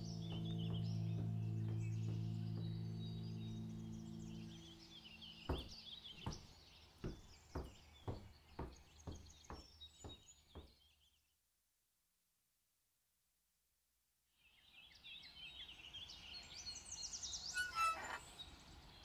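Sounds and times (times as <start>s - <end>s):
birds chirping: 0.0s - 10.9s, 15.2s - 19.0s
footsteps on hard floor: 5.5s - 10.7s.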